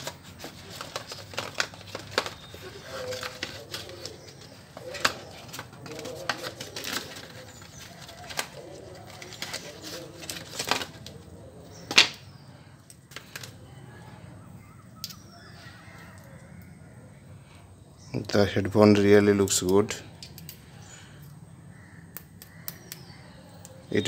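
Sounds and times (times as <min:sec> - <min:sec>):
packaging rustling and clicks: 0:00.0 - 0:12.3, 0:12.9 - 0:13.6.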